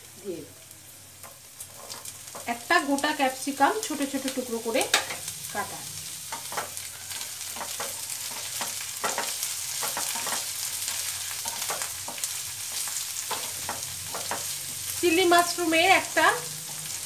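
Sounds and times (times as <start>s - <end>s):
vegetables sizzling in oil: 0.0s - 17.0s
wooden spatula scraping pan: 1.6s - 2.5s.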